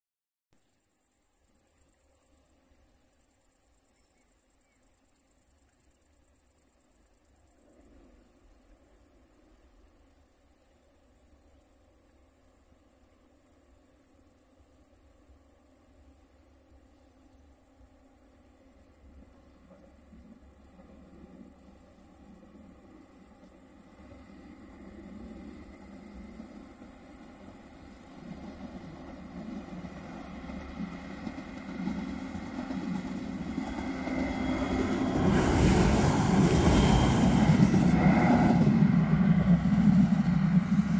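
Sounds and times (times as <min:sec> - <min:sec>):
crickets chirring: 0:00.6 - 0:40.9
train rumbling: 0:15.2 - 0:40.9.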